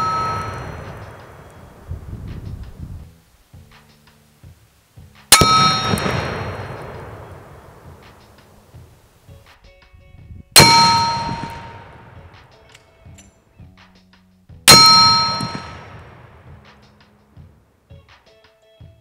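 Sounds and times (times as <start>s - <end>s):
bullets clanging on steel plate: 0.0s - 1.7s, 5.3s - 8.5s, 10.6s - 13.4s, 14.7s - 16.0s.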